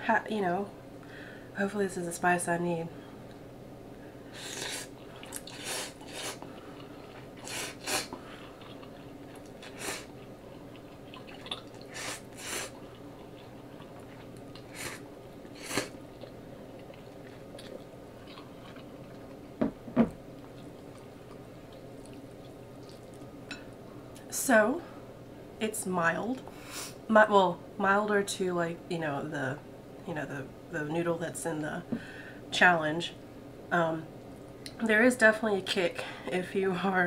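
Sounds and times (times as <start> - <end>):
person slurping noodles: 4.4 - 6.4, 7.4 - 8.2, 15.6 - 16.0
person chewing: 4.4 - 19.6, 20.3 - 23.3.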